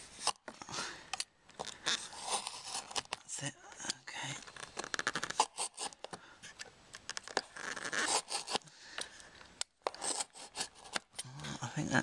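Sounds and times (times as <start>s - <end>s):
knife blade scraping plastic: 1.6s - 3.2s, 4.5s - 6.2s, 7.1s - 8.6s, 9.8s - 11.2s.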